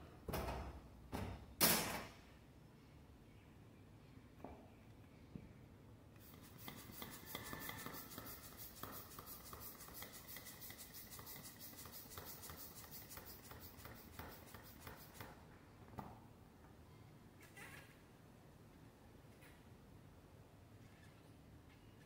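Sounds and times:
scratching on a ball: 0:06.2 - 0:15.4.

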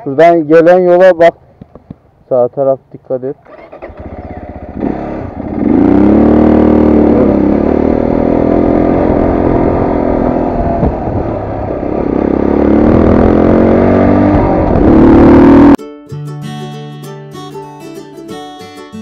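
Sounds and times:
motorcycle engine accelerating: 0:03.4 - 0:15.8.

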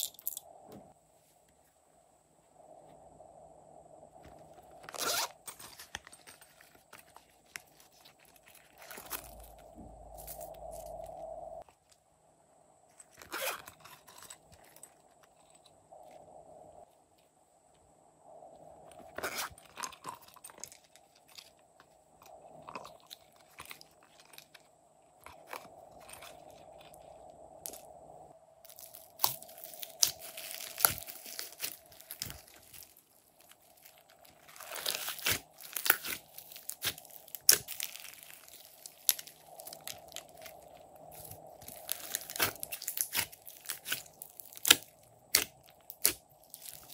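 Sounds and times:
faint steady hum: 0:00.0 - 0:46.9
slime crunching and popping: 0:28.7 - 0:46.9.

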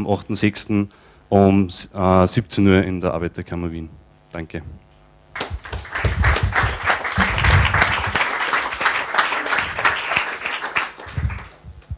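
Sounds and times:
small audience applauding: 0:05.3 - 0:11.7.

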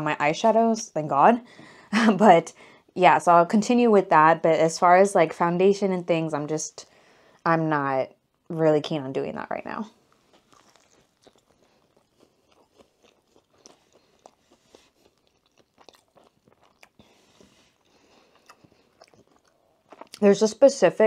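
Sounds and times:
chewing with soft crunches: 0:10.0 - 0:20.2
biting into sandwich: 0:10.1 - 0:20.2.

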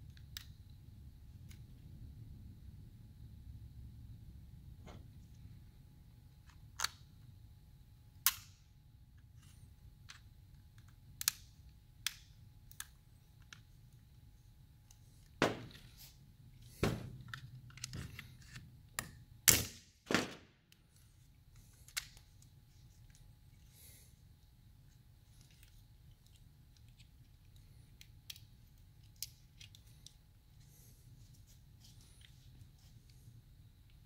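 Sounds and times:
plastic parts clicking and snapping: 0:06.4 - 0:07.1, 0:08.2 - 0:08.6, 0:09.4 - 0:13.7, 0:16.8 - 0:19.7, 0:21.6 - 0:23.2, 0:25.2 - 0:30.2.

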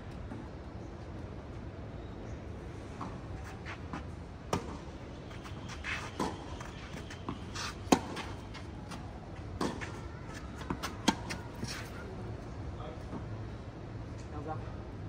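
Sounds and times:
tennis ball bouncing: 0:03.9 - 0:11.9
tennis ball struck by rackets: 0:04.5 - 0:04.9, 0:05.9 - 0:08.7, 0:09.6 - 0:11.9.

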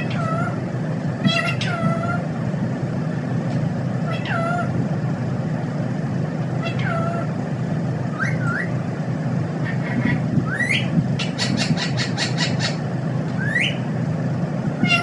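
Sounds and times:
parakeet squeaky calls: 0:00.0 - 0:00.6, 0:01.2 - 0:02.2, 0:04.1 - 0:04.7, 0:06.6 - 0:07.3, 0:08.2 - 0:08.7, 0:09.6 - 0:12.8, 0:13.4 - 0:13.8
steady low hum: 0:00.0 - 0:15.0.

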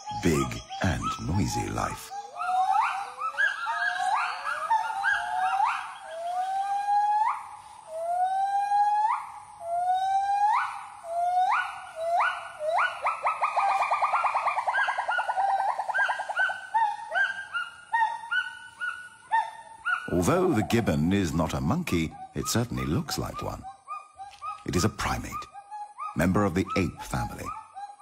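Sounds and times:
gibbon whooping and hooting: 0:00.0 - 0:20.8.

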